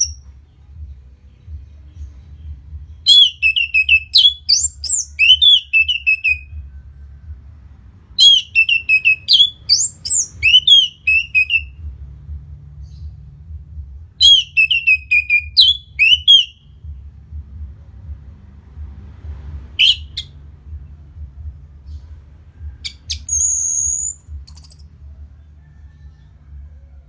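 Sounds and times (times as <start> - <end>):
faint low hum: 0.0 - 27.0
thrush singing whistled phrases: 3.0 - 6.7, 8.2 - 11.8, 14.2 - 16.8, 19.8 - 20.3, 22.9 - 24.9.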